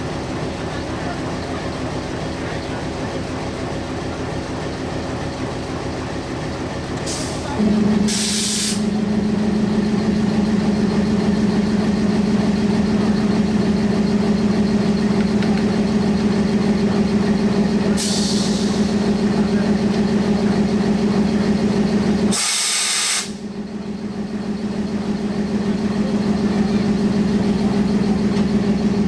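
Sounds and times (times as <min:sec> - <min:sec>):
diesel locomotive engine running: 0:00.0 - 0:29.0
air hissing from brake hoses: 0:07.1 - 0:08.9, 0:18.0 - 0:18.8, 0:22.3 - 0:23.4
loud steady hum: 0:07.4 - 0:29.0.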